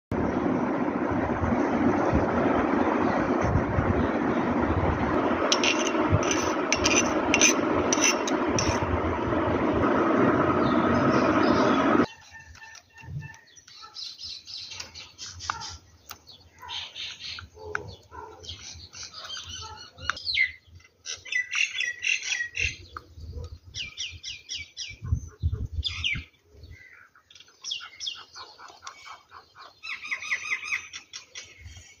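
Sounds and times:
loud scraping noise: 5.3s - 12.1s
bird chirping calls: 10.6s - 32.0s.

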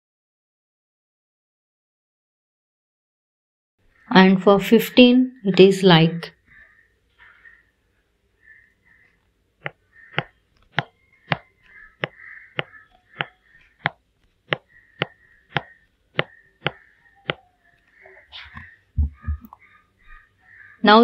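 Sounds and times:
stylus tapping on tablet screen: 9.6s - 17.5s, 18.6s - 19.6s.

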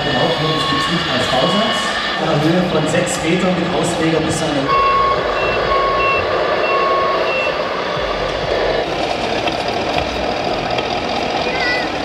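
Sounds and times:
electronic reversing beeper: 0.0s - 8.8s
steady background noise: 0.0s - 12.0s.

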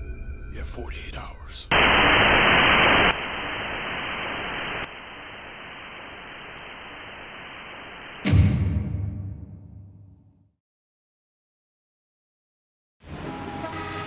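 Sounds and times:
television static hiss: 0.9s - 8.3s.

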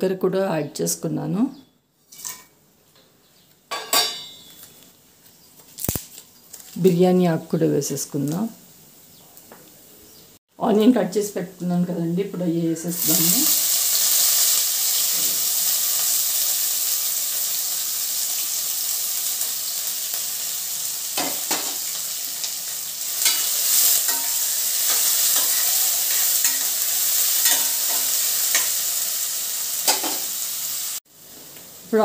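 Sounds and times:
onions sizzling in oil: 12.5s - 32.0s.

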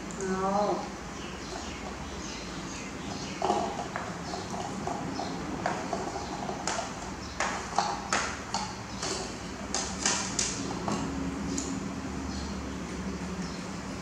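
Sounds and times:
clicks and knocks on a bowl: 3.4s - 11.7s.

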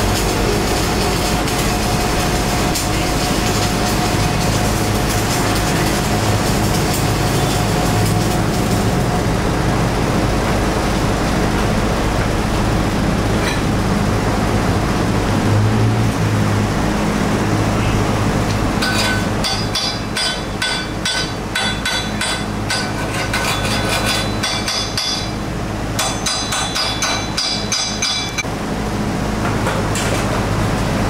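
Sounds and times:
welding machines humming: 0.0s - 31.0s
hammer tapping on metal: 18.8s - 25.4s, 26.0s - 28.4s.

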